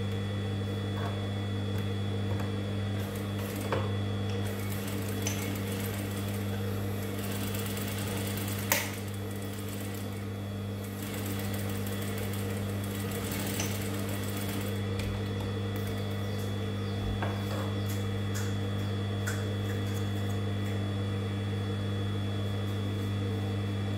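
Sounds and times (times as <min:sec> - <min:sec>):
sewing machine motor hum: 0:00.0 - 0:18.9.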